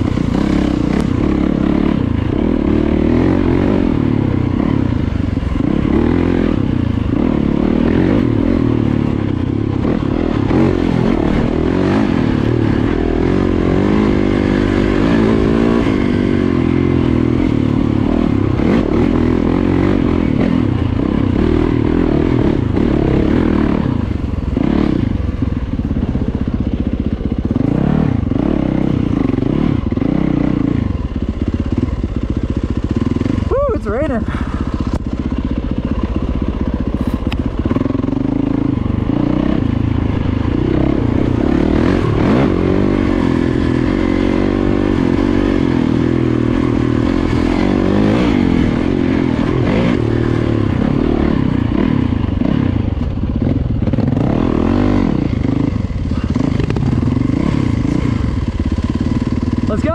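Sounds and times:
dirt bike engine revving: 0:00.0 - 0:26.6, 0:27.2 - 0:59.9
bike rattling: 0:31.1 - 0:50.8.

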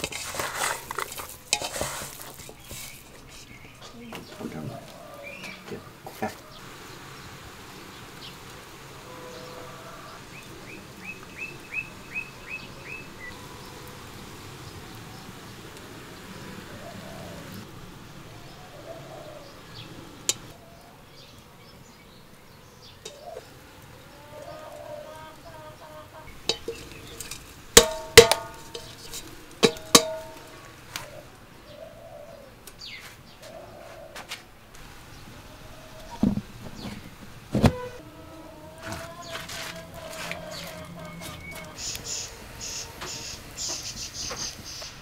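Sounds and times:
metal basin clanking: 0:00.0 - 0:04.5, 0:23.0 - 0:23.5, 0:26.2 - 0:31.0
bird chirping: 0:02.4 - 0:34.2, 0:39.1 - 0:45.0.

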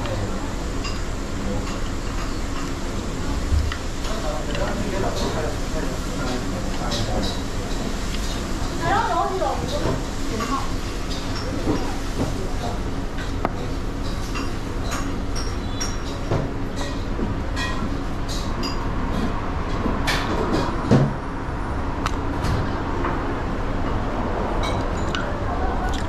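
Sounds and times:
dishes and utensils clinking: 0:04.0 - 0:08.8, 0:09.6 - 0:18.9.

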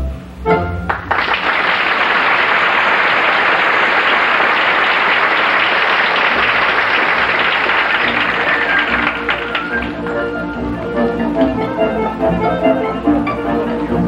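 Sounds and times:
music: 0:00.0 - 0:01.5, 0:07.2 - 0:14.0
audience applauding: 0:00.9 - 0:10.9.

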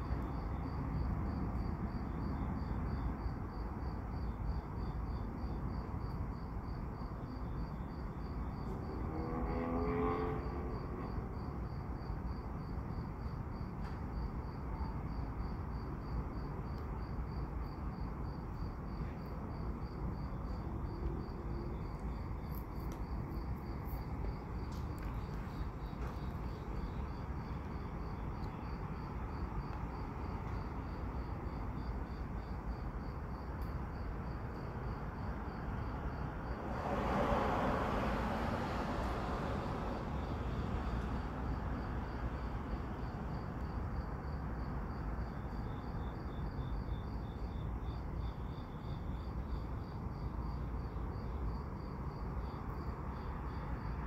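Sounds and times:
crickets chirping: 0:00.0 - 0:54.0
constant low rumble: 0:16.5 - 0:45.9
surge of noise: 0:36.6 - 0:41.4.

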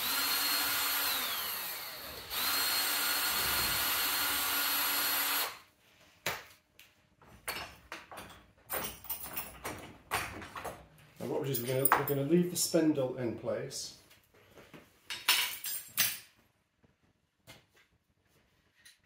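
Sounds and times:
cordless drill whine: 0:00.0 - 0:05.6
clicks and knocks of handle: 0:07.4 - 0:10.9.

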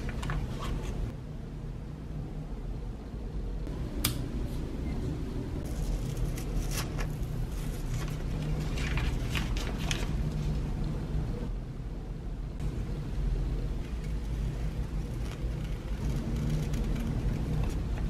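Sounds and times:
steady low hum: 0:00.0 - 0:18.0
paper crinkling and rustling: 0:05.7 - 0:10.6, 0:14.0 - 0:17.8.

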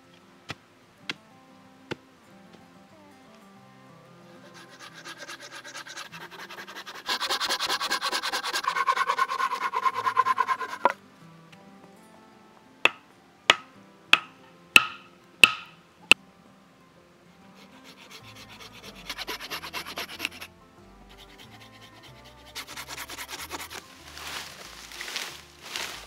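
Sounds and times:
blade rasping on wooden pole: 0:04.3 - 0:11.0, 0:17.6 - 0:20.5, 0:21.1 - 0:26.0
wood striking wood: 0:12.8 - 0:15.8
branch dragged through ferns: 0:23.2 - 0:26.0.

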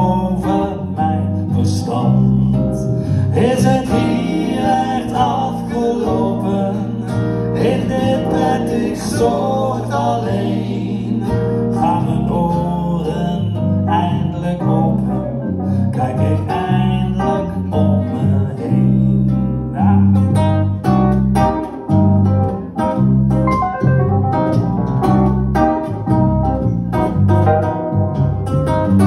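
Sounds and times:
acoustic guitar picking: 0:00.0 - 0:29.0
electric bass: 0:00.0 - 0:29.0
keyboard: 0:20.8 - 0:29.0.

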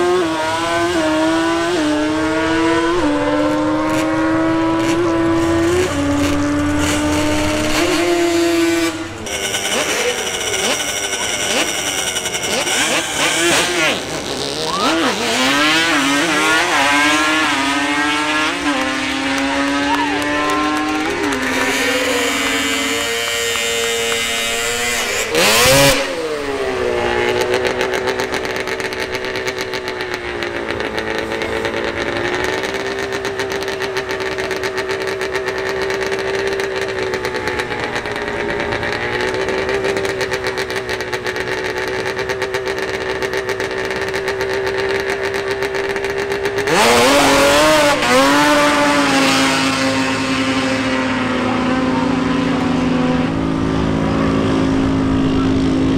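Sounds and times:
loud engine blast: 0:00.0 - 0:34.8, 0:46.2 - 0:55.9
quad engine accelerating: 0:00.0 - 0:55.9
quad engine at high revs: 0:00.0 - 0:55.9.

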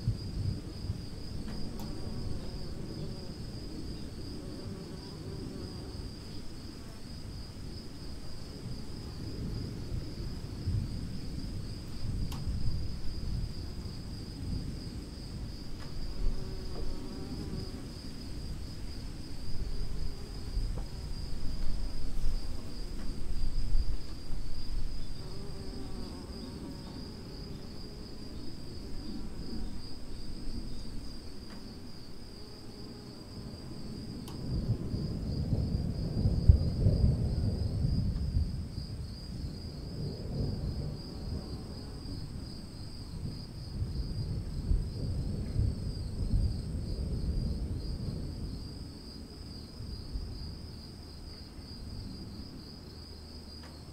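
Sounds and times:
distant thunder rumbling: 0:00.0 - 0:06.0, 0:07.3 - 0:27.6, 0:33.4 - 0:49.0
insect chorus: 0:00.0 - 0:53.9.

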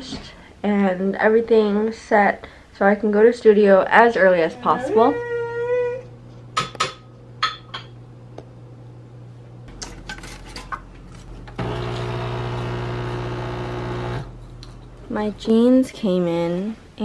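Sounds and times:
kitchenware clinking: 0:06.6 - 0:08.0
espresso machine pump buzzing: 0:11.5 - 0:14.3.

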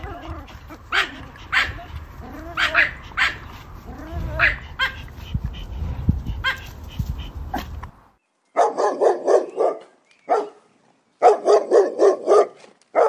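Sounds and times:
dog barking: 0:00.9 - 0:01.9, 0:02.5 - 0:03.5, 0:08.6 - 0:10.6, 0:11.2 - 0:13.0.

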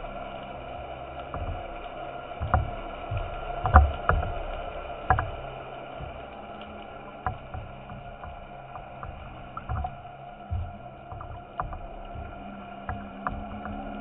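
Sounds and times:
underwater hiss: 0:00.0 - 0:14.0
sharp knocks and dull thuds: 0:02.4 - 0:04.4, 0:07.2 - 0:14.0.

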